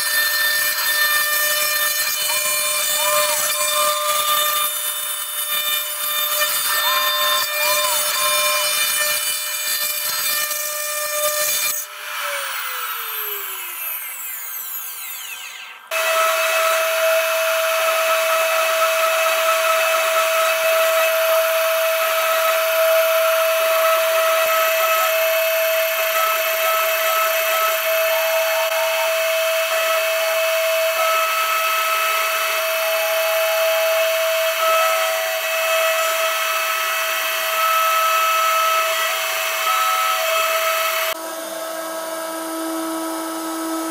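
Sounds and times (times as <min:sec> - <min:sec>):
milling machine spindle whine: 0:12.2 - 0:16.5.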